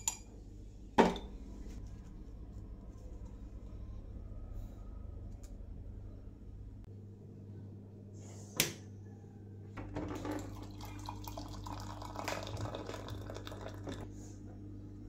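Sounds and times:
steady low hum: 0:00.0 - 0:15.0
water pouring into a glass: 0:10.2 - 0:14.1.

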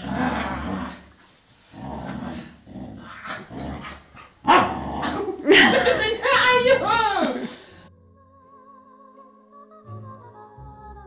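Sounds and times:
dog growling: 0:00.0 - 0:06.0.

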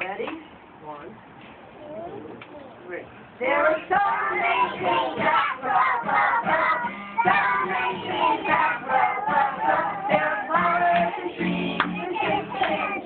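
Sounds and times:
song with singing voices: 0:03.4 - 0:13.0.

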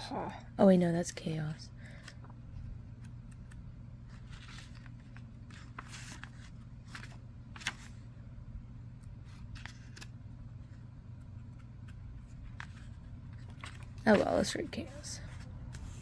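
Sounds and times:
low steady hum: 0:00.0 - 0:16.0
paper pages flipping: 0:02.0 - 0:08.1, 0:09.0 - 0:16.0.

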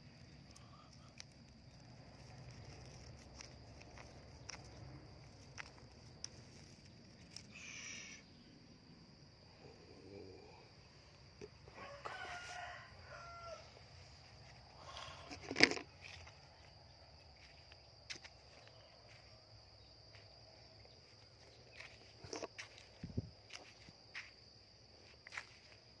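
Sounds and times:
rooster crowing: 0:11.6 - 0:13.9.

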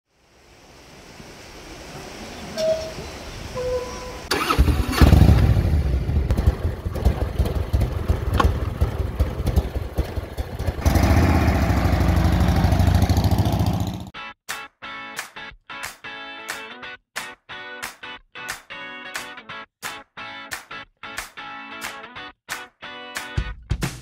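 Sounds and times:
motorcycle engine revving: 0:04.3 - 0:14.1.

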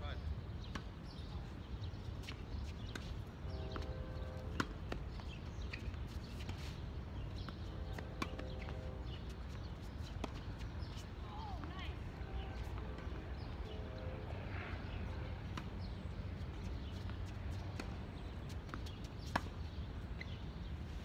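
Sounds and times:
tennis ball bouncing: 0:04.5 - 0:06.7, 0:07.4 - 0:11.0, 0:16.6 - 0:18.0, 0:18.6 - 0:19.7.

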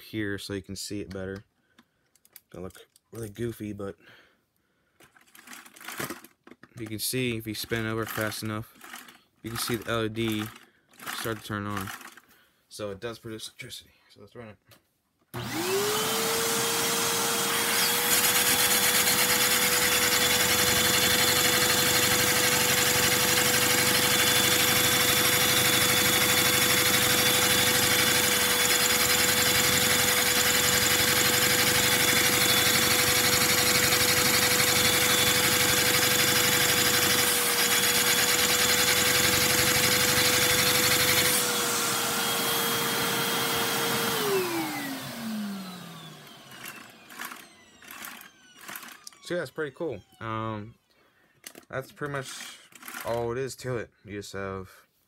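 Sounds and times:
vacuum cleaner motor whine: 0:15.4 - 0:50.2.

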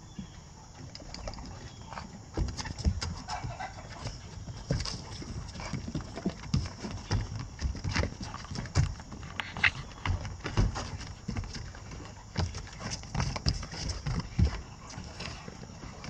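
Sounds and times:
dog paws thumping on wood: 0:00.1 - 0:16.0.

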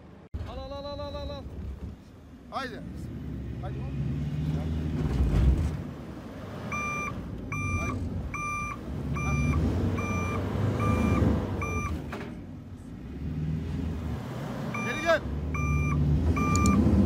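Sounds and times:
engines idling: 0:00.0 - 0:17.0
reversing beeper: 0:06.7 - 0:12.0, 0:14.8 - 0:16.8.

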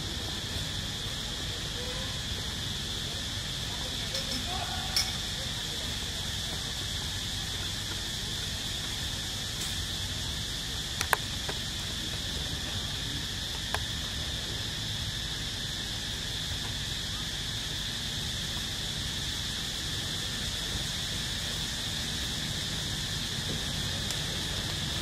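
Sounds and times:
insects droning: 0:00.0 - 0:25.0.

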